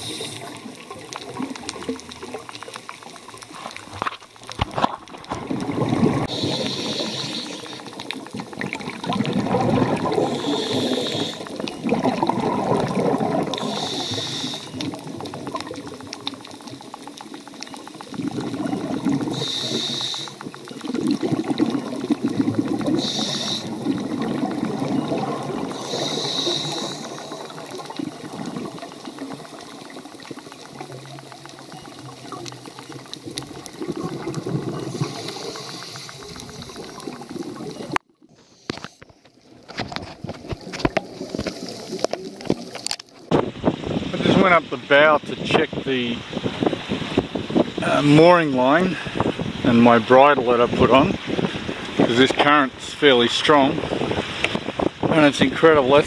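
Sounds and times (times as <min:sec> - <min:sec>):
regulator hissing inhalations: 0:00.0 - 0:00.6, 0:06.3 - 0:07.8, 0:10.3 - 0:11.5, 0:13.6 - 0:14.8, 0:19.3 - 0:20.5, 0:22.9 - 0:23.8, 0:25.8 - 0:27.5, 0:34.9 - 0:36.9
exhaled bubbles underwater: 0:00.0 - 0:38.3, 0:39.4 - 0:52.6.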